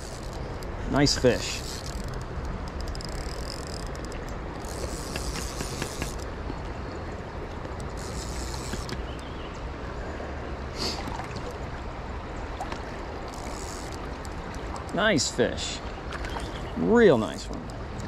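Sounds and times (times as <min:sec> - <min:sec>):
shallow river water rushing: 0:00.0 - 0:18.0
faint clicks: 0:01.6 - 0:06.8, 0:12.6 - 0:15.0.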